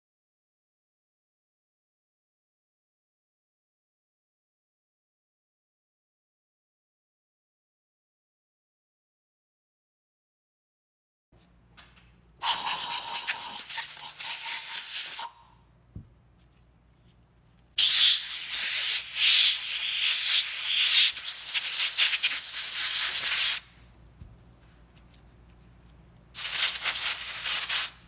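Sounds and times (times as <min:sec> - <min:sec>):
compressed air blow gun hissing: 0:17.8 - 0:23.7, 0:26.4 - 0:28.0.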